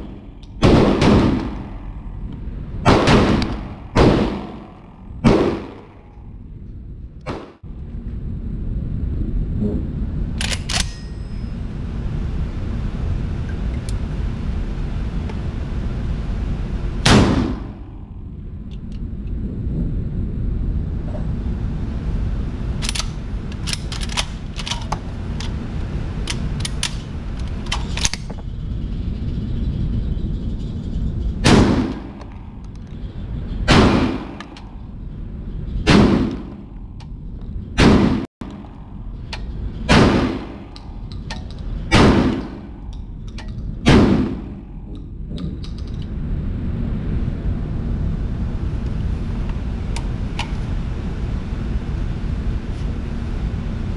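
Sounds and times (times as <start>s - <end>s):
shotgun shots: 0.6s - 1.8s, 2.8s - 6.0s, 17.0s - 17.8s, 33.7s - 34.4s, 35.9s - 36.6s, 37.8s - 38.3s, 39.9s - 40.7s, 41.9s - 42.8s, 43.8s - 44.6s
gun handling clicks: 10.4s - 11.1s, 22.8s - 25.5s.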